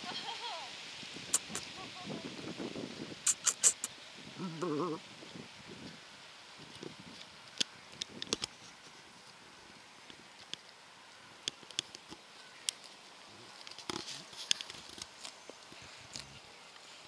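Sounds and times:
faint outdoor hiss: 0.0 - 17.0.

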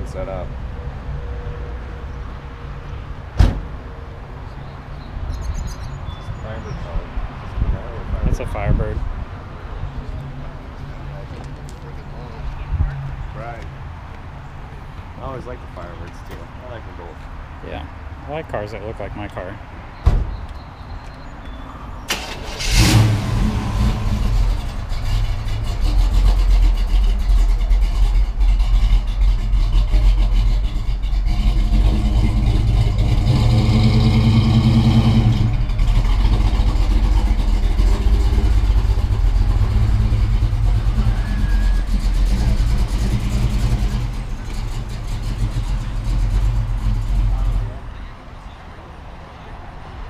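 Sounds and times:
car engine starting and idling: 22.1 - 47.8
engine revving: 22.1 - 47.8.

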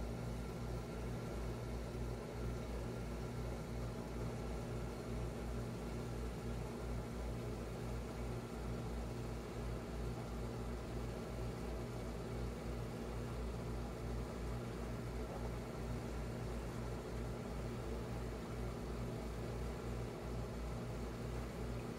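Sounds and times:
low electrical hum: 0.0 - 21.9.

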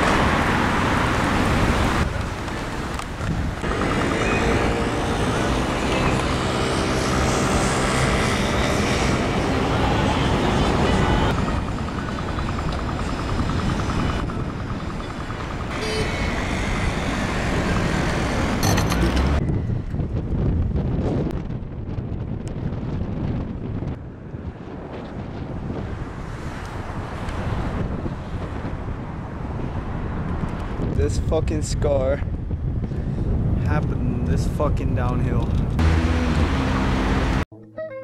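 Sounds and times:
street traffic: 0.0 - 20.9, 22.2 - 31.2, 32.1 - 37.5
vehicle engine running: 3.6 - 19.4.

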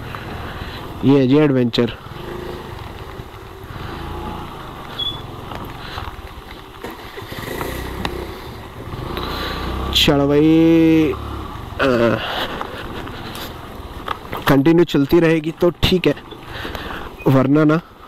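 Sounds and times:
scooter engine running: 2.0 - 14.4, 15.6 - 17.2.

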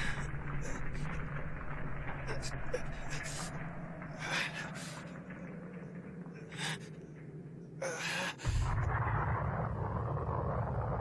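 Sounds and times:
deep rumbling blast: 8.4 - 11.0
low steady rumble: 8.4 - 11.0.

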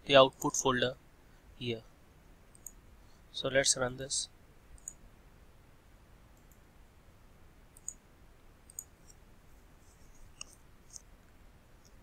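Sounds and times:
computer mouse clicks: 2.5 - 2.8, 4.8 - 5.0, 6.3 - 6.7, 7.8 - 8.0, 8.6 - 9.2, 10.1 - 11.1.

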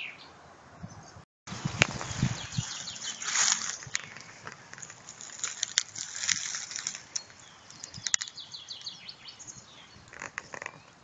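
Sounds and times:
dry leaves rustling: 1.5 - 8.4
bird trill: 1.9 - 5.0, 6.6 - 10.9.

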